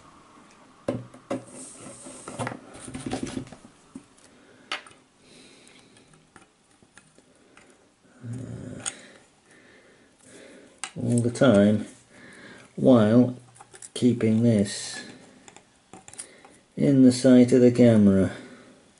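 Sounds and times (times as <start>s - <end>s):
small clicks and taps: 15.4s - 16.6s.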